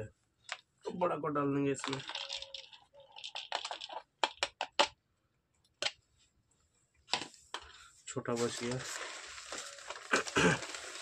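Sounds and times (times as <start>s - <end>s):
pellets rustling in container: 8.3s - 11.0s
sharp clicks of pellets: 8.4s - 11.0s.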